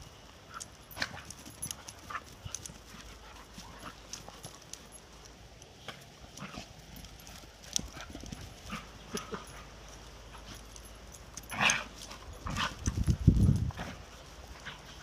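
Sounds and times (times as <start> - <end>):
dogs scuffling: 0.4 - 15.0
dogs growling: 6.3 - 10.7, 11.4 - 13.0.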